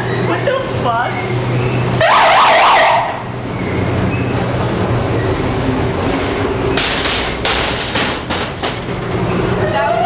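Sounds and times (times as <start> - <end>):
ride car rumbling along track: 0.0 - 10.0.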